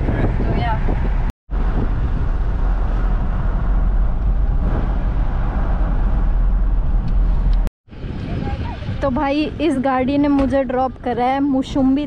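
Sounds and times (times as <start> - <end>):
engine and tyre noise inside car: 1.6 - 7.7.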